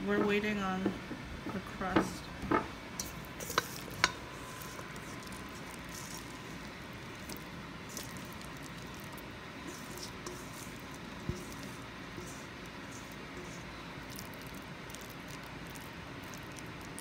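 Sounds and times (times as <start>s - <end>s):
wet squishing of pie filling: 3.0s - 17.0s.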